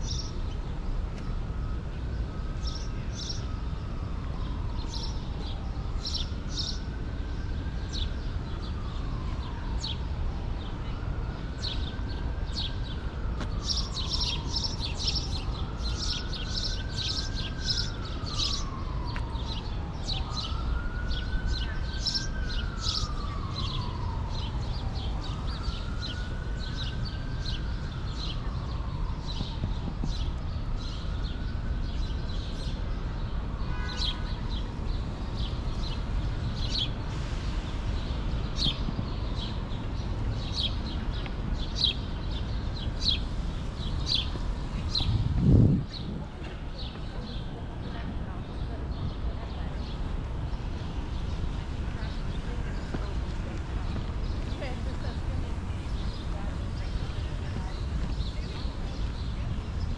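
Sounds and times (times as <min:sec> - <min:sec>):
faint siren wailing: 0:00.0 - 0:59.8
low city rumble: 0:00.0 - 0:59.9
small birds chirping: 0:48.5 - 0:59.9.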